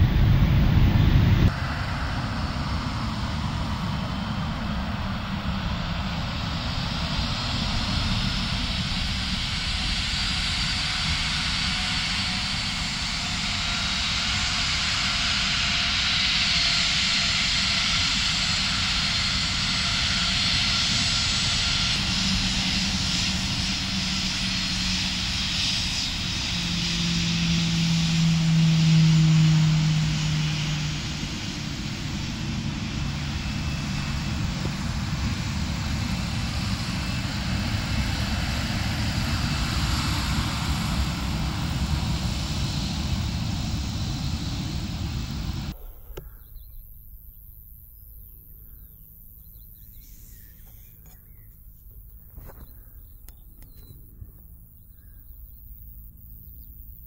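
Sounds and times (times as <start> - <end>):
jet engines whining: 0.0 - 56.3
low steady hum: 44.3 - 57.0.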